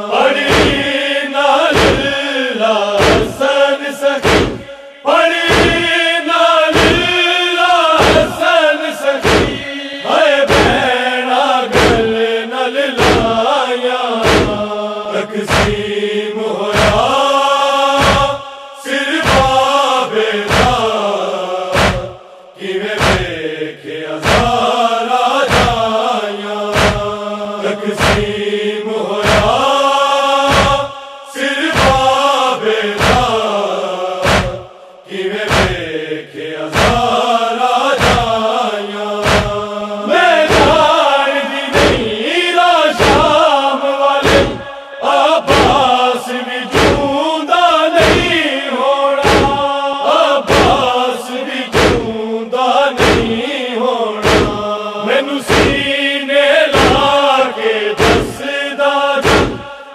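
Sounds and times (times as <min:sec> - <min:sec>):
men chanting a mournful melody: 0:00.0 - 0:59.9
chest-beating thumps: 0:00.4 - 0:00.9, 0:01.7 - 0:02.2, 0:03.0 - 0:03.4, 0:04.2 - 0:04.7, 0:05.5 - 0:06.0, 0:06.7 - 0:07.1, 0:08.0 - 0:08.4, 0:09.2 - 0:09.7, 0:10.5 - 0:10.9, 0:11.7 - 0:12.1, 0:13.0 - 0:13.4, 0:14.2 - 0:14.7, 0:15.5 - 0:15.9, 0:16.8 - 0:17.1, 0:18.0 - 0:18.4, 0:19.2 - 0:19.6, 0:20.5 - 0:20.8, 0:21.7 - 0:22.2, 0:23.0 - 0:23.4, 0:24.2 - 0:24.6, 0:25.5 - 0:25.9, 0:26.7 - 0:27.2, 0:28.0 - 0:28.4, 0:29.2 - 0:29.6, 0:30.5 - 0:31.0, 0:31.7 - 0:32.2, 0:33.0 - 0:33.4, 0:34.2 - 0:34.8, 0:35.5 - 0:35.9, 0:36.7 - 0:37.2, 0:38.0 - 0:38.4, 0:39.2 - 0:39.7, 0:40.5 - 0:40.9, 0:41.8 - 0:42.2, 0:43.0 - 0:43.4, 0:44.2 - 0:44.7, 0:45.5 - 0:45.8, 0:46.7 - 0:47.1, 0:48.0 - 0:48.4, 0:49.2 - 0:49.6, 0:50.5 - 0:50.9, 0:51.7 - 0:52.2, 0:53.0 - 0:53.4, 0:54.2 - 0:54.7, 0:55.5 - 0:55.9, 0:56.8 - 0:57.1, 0:58.0 - 0:58.4, 0:59.2 - 0:59.7.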